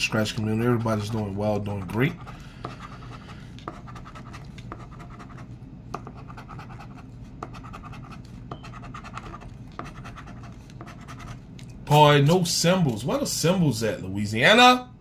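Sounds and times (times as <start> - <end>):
coin scratching lottery ticket: 0.6 - 11.4.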